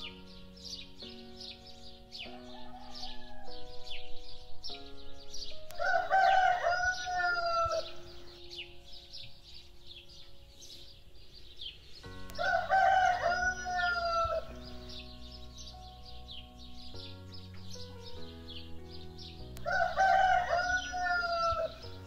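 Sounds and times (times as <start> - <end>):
small birds chirping: 0.0 - 22.0
soft background music: 0.0 - 22.0
rooster crowing: 2.3 - 4.1, 5.7 - 8.0, 12.4 - 14.5, 19.6 - 21.8.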